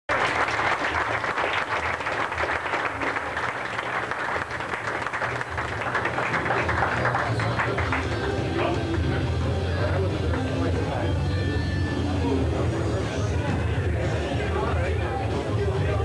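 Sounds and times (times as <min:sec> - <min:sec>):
crowd applauding: 0:00.1 - 0:11.0.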